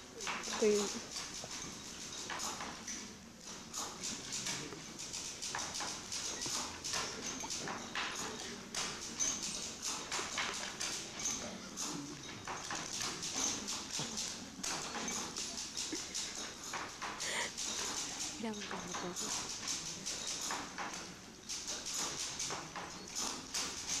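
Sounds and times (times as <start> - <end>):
irregular clacks and knocks: 0.2 - 24.0.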